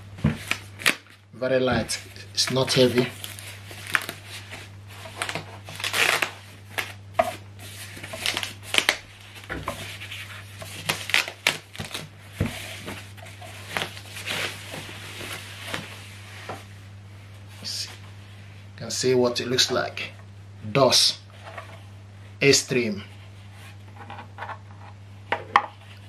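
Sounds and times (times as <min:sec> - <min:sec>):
steady low hum: 0:00.0 - 0:26.0
plastic wrapping rustling: 0:01.8 - 0:07.0, 0:07.6 - 0:16.8.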